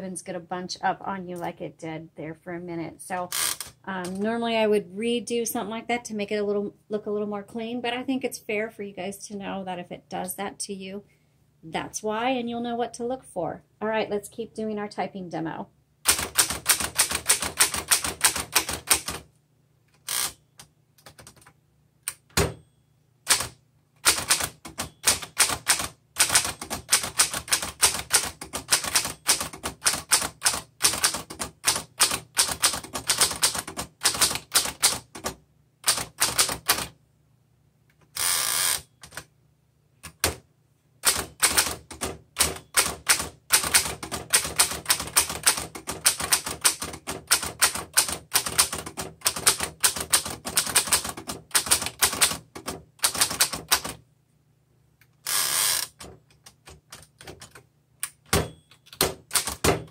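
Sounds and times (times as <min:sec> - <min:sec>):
manual typewriter typing: 0:16.0 - 0:19.2, 0:23.3 - 0:37.0, 0:41.0 - 0:54.0, 0:55.3 - 0:59.9
typewriter carriage return rattle: 0:16.1 - 0:19.2, 0:23.3 - 0:36.9, 0:41.0 - 0:54.0, 0:58.3 - 0:59.9.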